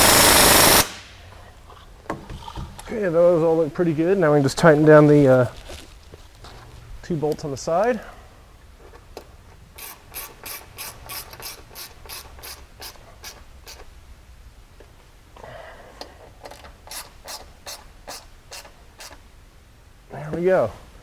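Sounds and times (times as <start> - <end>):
ratchet wrench clicking: 9.8 - 13.9.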